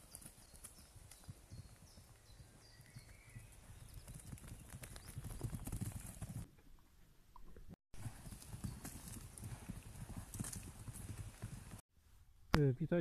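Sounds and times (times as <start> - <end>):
cattle hooves galloping: 0.0 - 6.5, 8.0 - 11.8.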